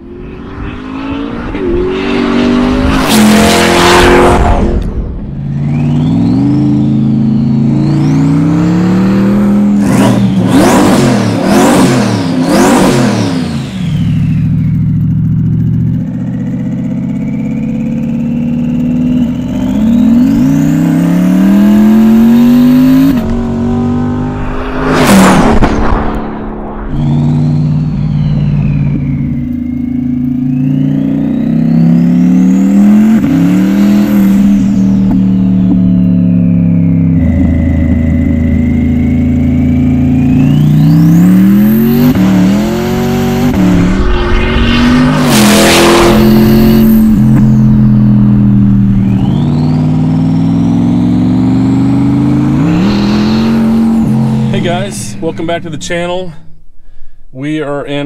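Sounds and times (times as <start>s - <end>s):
high turbo whistle: 0.0s - 9.1s, 23.8s - 39.2s, 40.0s - 50.7s, 51.9s - 55.3s
engine accelerating through gear changes: 0.0s - 56.1s.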